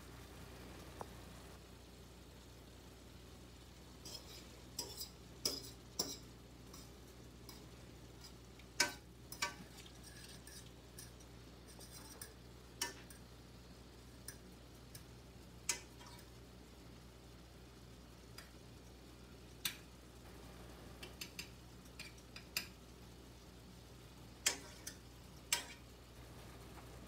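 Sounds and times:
faint low hum: 0:00.0 - 0:27.0
fork scraping frying pan: 0:04.0 - 0:13.2.

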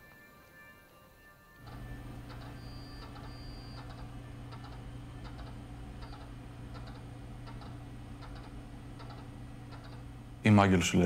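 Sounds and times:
low electrical hum: 0:01.4 - 0:11.0
keyboard keys clicking: 0:01.6 - 0:10.0.

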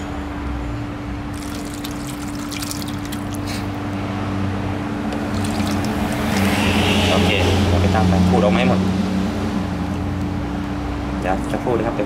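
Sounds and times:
liquid pouring into metal pot: 0:01.3 - 0:03.5, 0:05.2 - 0:06.5.

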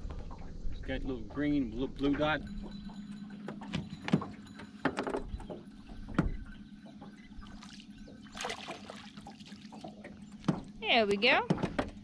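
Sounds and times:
faint low hum: 0:00.0 - 0:11.5
knocks and clunks in metal boat: 0:03.4 - 0:07.6, 0:09.7 - 0:12.0.

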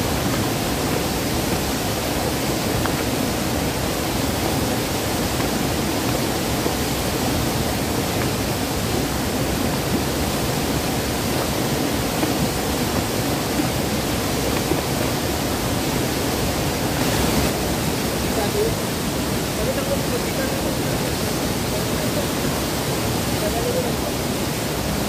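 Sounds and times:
river water rushing over rocks: 0:00.0 - 0:25.0.

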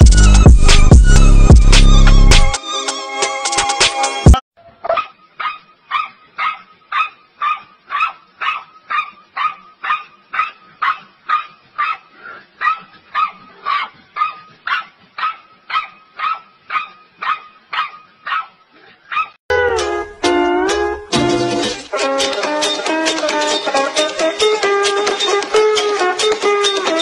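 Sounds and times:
dog barking: 0:04.8 - 0:19.4.

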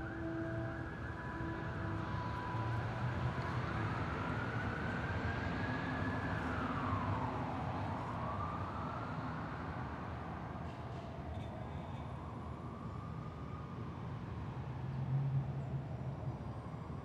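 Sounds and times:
police siren wailing: 0:00.0 - 0:09.8
low rumble of traffic: 0:00.0 - 0:17.0.

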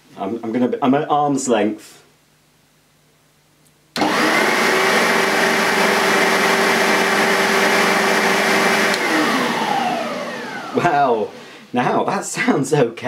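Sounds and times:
upright vacuum cleaner running: 0:04.0 - 0:11.7.

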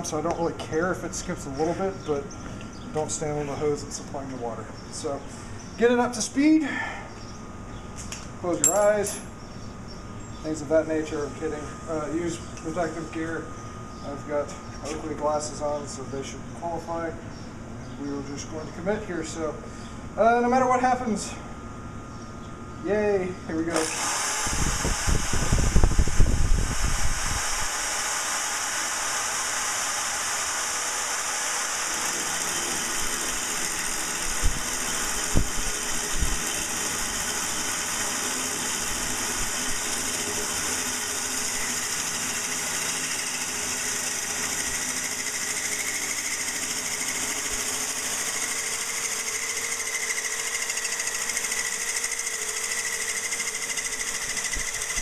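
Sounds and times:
faint high whine: 0:08.4 - 0:17.1
hole saw grinding glass: 0:27.9 - 0:35.3.

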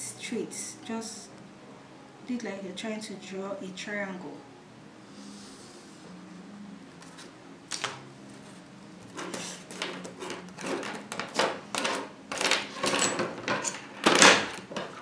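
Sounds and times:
metal ruler clattering: 0:09.2 - 0:15.0.

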